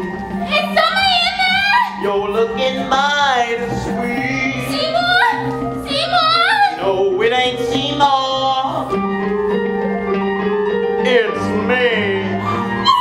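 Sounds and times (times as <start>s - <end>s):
wordless singing: 2.0s - 5.4s.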